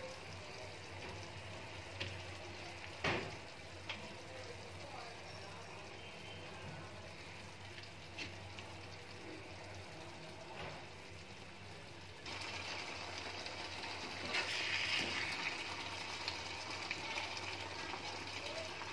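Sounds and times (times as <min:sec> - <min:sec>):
curry bubbling in pot: 0:00.0 - 0:18.9.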